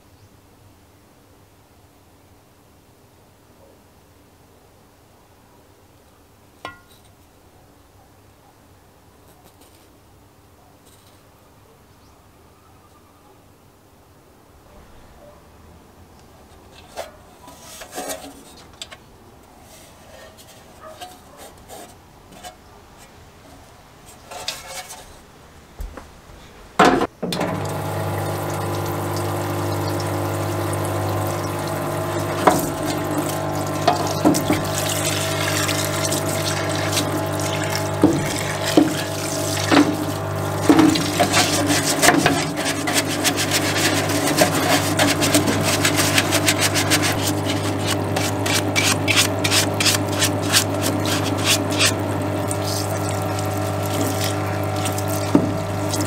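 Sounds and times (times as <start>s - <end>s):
electric pump humming: 27.1s - 56.0s
fluid pouring onto metal: 27.4s - 56.0s
bristle brush scrubbing: 28.4s - 56.0s.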